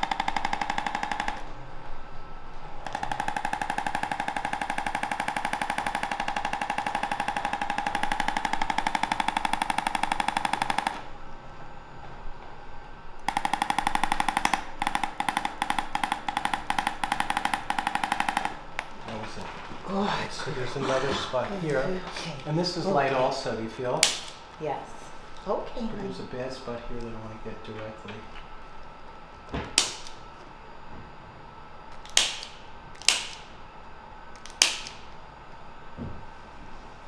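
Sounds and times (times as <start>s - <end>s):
rapid electric tapping: 0.0s - 1.5s, 2.8s - 11.2s, 13.2s - 19.7s.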